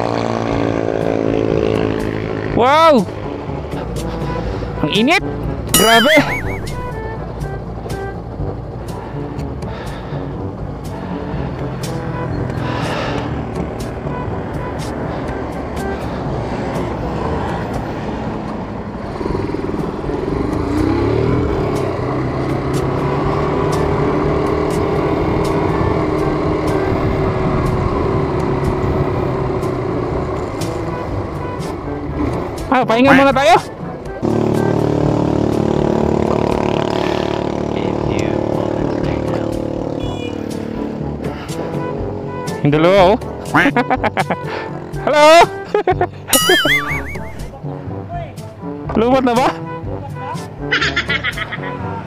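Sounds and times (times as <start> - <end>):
motorcycle engine running: 34.2 - 40.9.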